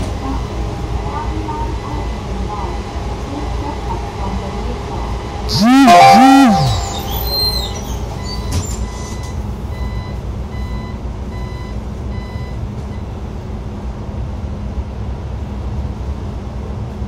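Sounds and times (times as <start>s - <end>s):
bus engine low rumble: 0.0s - 5.3s, 9.4s - 17.0s
short electronic warning beeps: 5.5s - 7.8s.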